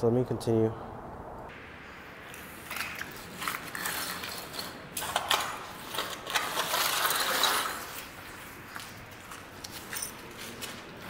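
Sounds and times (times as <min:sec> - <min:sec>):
push broom scraping concrete: 0:03.1 - 0:08.2.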